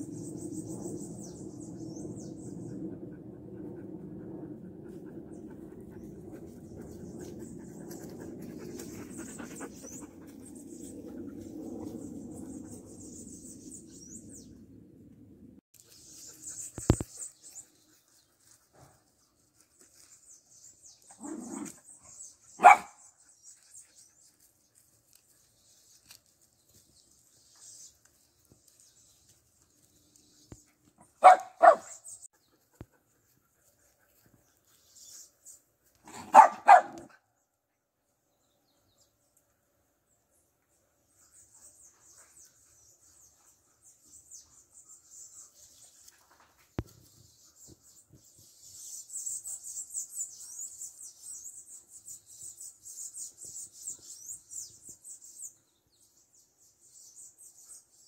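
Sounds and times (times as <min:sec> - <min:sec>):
dog barking: 0:22.6 - 0:23.0, 0:31.2 - 0:32.0, 0:36.1 - 0:37.1.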